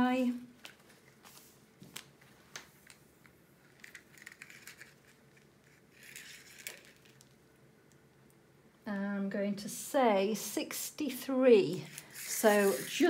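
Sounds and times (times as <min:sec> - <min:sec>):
soft scraping and rustling: 0:00.7 - 0:03.0, 0:11.8 - 0:13.0.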